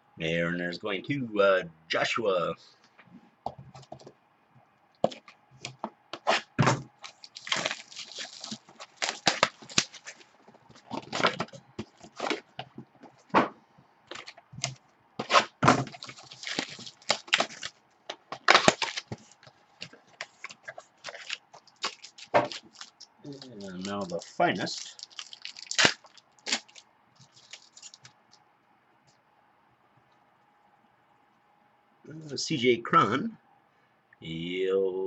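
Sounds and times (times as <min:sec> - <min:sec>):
wrapping crackling: 0:05.0 - 0:13.3, 0:14.1 - 0:28.4
cardboard tearing: 0:06.2 - 0:12.5, 0:15.2 - 0:28.1.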